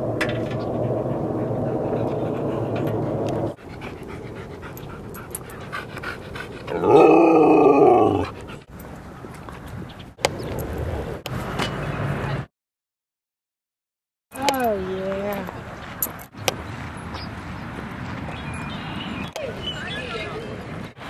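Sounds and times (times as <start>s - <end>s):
steady low rumble: 0.0s - 6.8s
dog howling: 6.7s - 8.3s.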